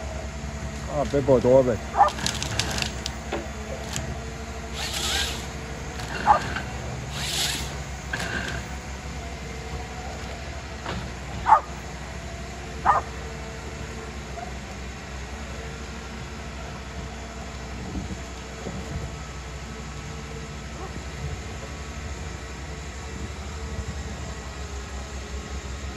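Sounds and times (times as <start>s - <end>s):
low hum of diesel machines: 0.0s - 25.9s
dog barking: 1.9s - 2.2s, 6.2s - 6.6s, 11.4s - 11.7s, 12.8s - 13.1s, 20.8s - 21.0s
hissing bursts: 4.7s - 8.7s.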